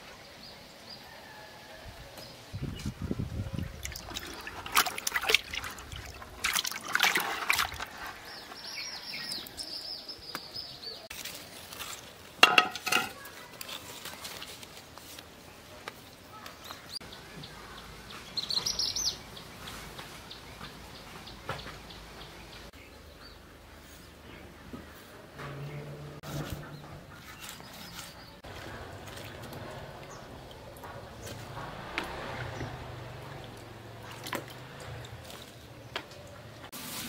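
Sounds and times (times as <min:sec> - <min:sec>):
water splashing in a pot: 0:03.6 - 0:08.4, 0:12.4 - 0:13.2, 0:28.4 - 0:37.0
sharp wet slaps: 0:03.8 - 0:07.9.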